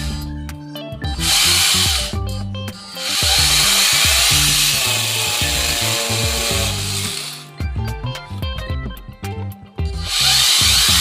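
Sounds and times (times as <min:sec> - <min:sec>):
background music with bass line: 0:00.0 - 0:11.0
electric drill boring into wall: 0:01.1 - 0:07.5, 0:10.0 - 0:11.0.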